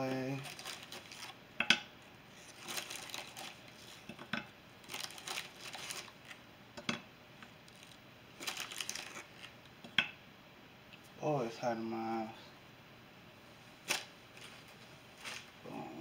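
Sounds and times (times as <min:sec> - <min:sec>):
packet crinkling: 0:00.0 - 0:01.4, 0:02.4 - 0:04.0, 0:04.8 - 0:06.4, 0:07.7 - 0:09.6, 0:13.8 - 0:15.6.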